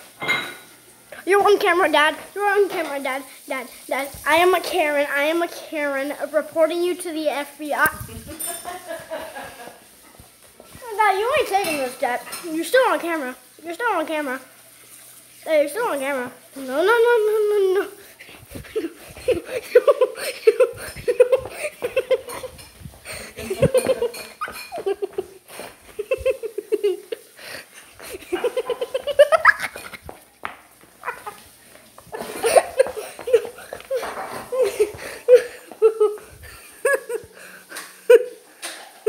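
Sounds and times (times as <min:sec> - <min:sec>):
person laughing hard: 0:18.5 - 0:27.3, 0:28.0 - 0:30.2, 0:32.1 - 0:37.4.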